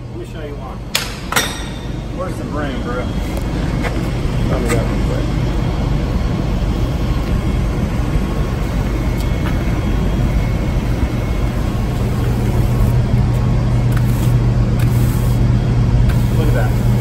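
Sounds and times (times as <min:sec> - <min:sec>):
low machine drone: 0:00.0 - 0:17.0.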